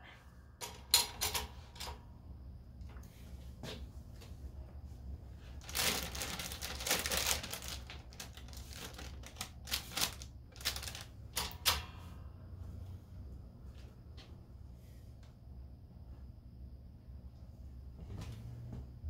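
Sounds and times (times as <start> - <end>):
parchment paper crinkling: 5.6 - 11.5.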